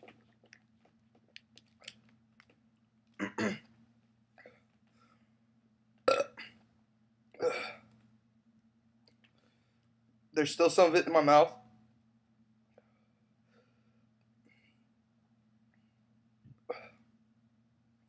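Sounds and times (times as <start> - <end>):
man burping: 3.2 - 3.7, 6.1 - 6.5, 7.4 - 7.8.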